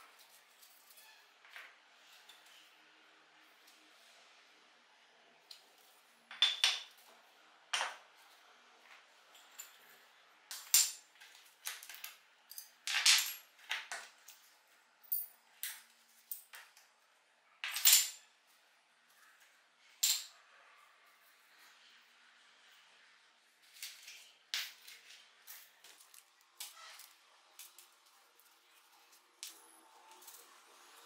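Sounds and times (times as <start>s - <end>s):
small metal parts clinking: 9.2s - 16.8s, 17.6s - 18.3s, 19.9s - 20.4s.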